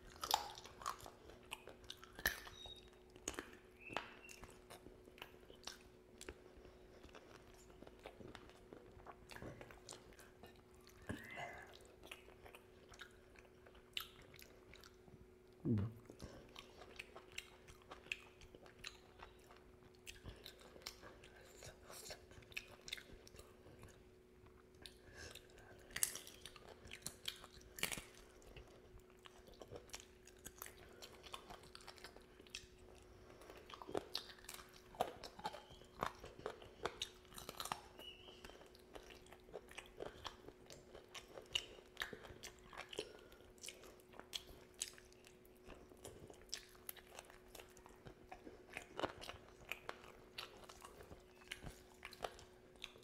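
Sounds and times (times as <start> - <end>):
chewing and crunchy bites: 0.0 - 53.0
faint steady hum: 0.0 - 53.0.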